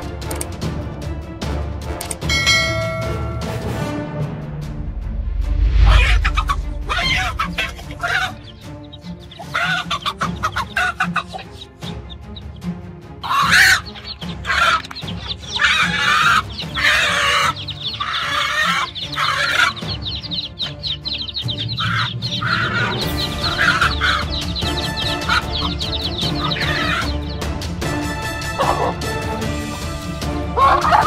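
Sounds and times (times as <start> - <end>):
background music: 0.0 - 31.0
hen squawking and clucking: 5.8 - 12.1, 13.2 - 27.4, 28.0 - 29.0, 30.4 - 31.0.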